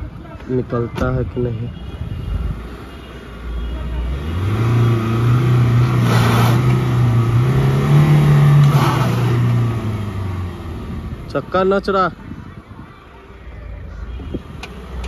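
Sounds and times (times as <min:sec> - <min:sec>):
engine revving under load: 0:04.0 - 0:11.3.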